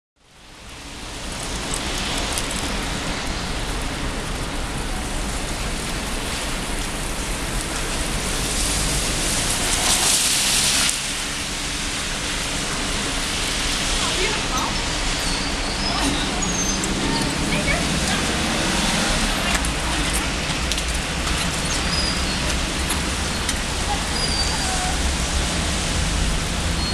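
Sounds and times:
low traffic rumble: 0.2 - 26.9
rain on street: 0.2 - 26.9
tyres hissing on wet pavement: 0.2 - 26.9.

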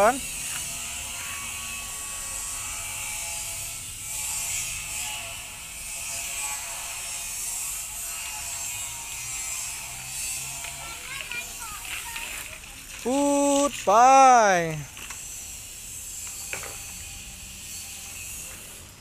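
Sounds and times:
bicycles clicking and rattling: 0.0 - 19.0
steady high hiss: 13.0 - 16.0.

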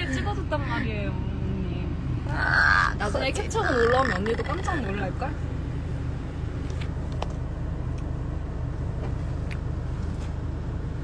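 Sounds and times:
vehicle cabin rumble: 0.0 - 11.0.

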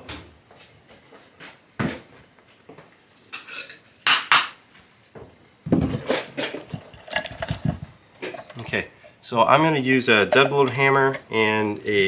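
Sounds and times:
tools and board clattering on workbench: 5.7 - 8.8, 10.2 - 11.2.

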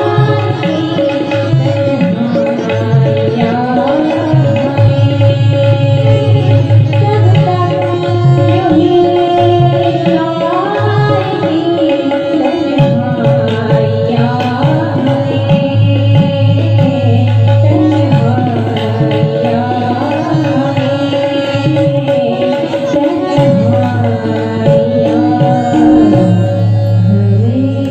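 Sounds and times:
harmonium: 0.0 - 27.9
tabla: 0.0 - 27.9
woman singing: 0.0 - 27.9.

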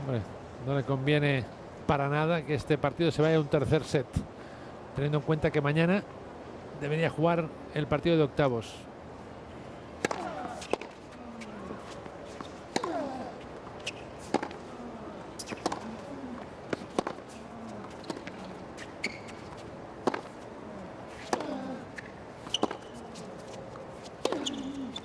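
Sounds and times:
tennis ball bouncing: 10.0 - 25.0
player grunting: 12.8 - 13.4, 21.3 - 21.9.

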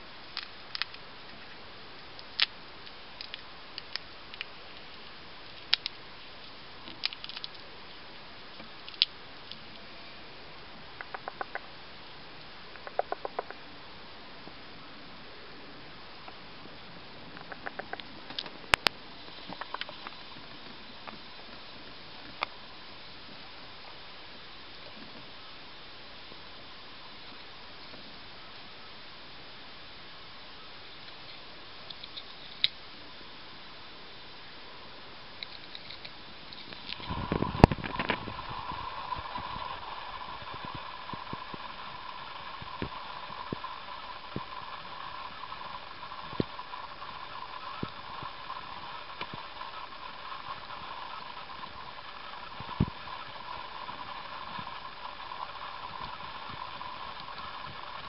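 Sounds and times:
hamster gnawing peanut shell: 0.3 - 8.0.

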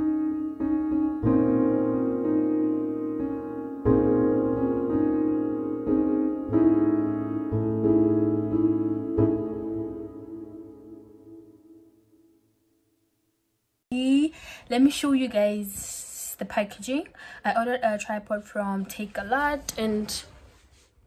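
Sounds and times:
slow piano chords: 0.0 - 12.5.

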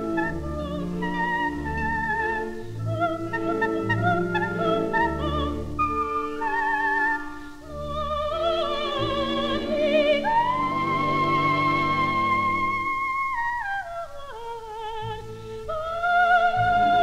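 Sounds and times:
orchestra playing: 0.0 - 13.5
soprano singing: 0.0 - 17.0.

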